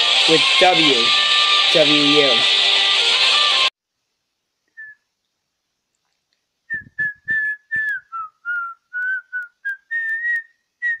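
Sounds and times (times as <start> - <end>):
person whistling a tune: 6.7 - 11.0.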